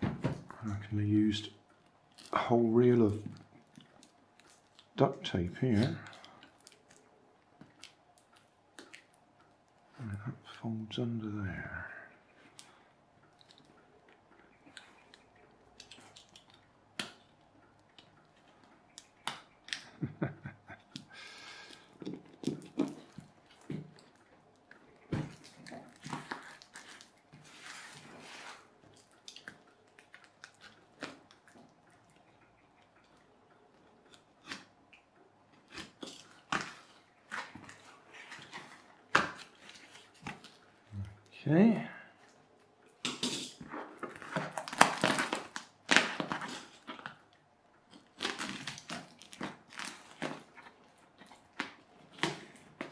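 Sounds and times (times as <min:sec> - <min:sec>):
plastic film crinkling: 0:21.5 - 0:31.8, 0:43.3 - 0:52.9
tool cutting plastic wrapping: 0:43.1 - 0:47.2.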